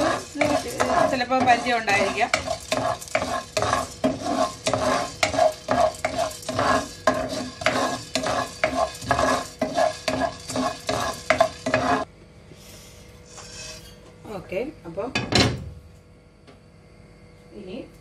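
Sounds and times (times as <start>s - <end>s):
spatula scraping pan: 0.0s - 12.1s.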